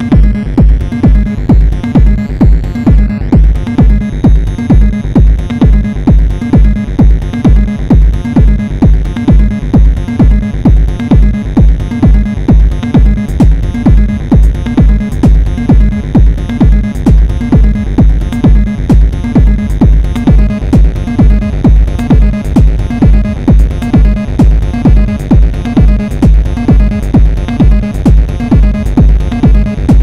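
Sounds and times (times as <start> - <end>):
kick drum: 0.0 - 30.0
low repeating synth line: 0.0 - 30.0.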